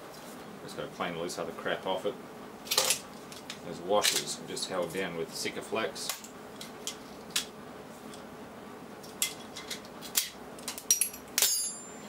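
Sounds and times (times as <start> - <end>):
metallic clink: 10.9 - 12.0.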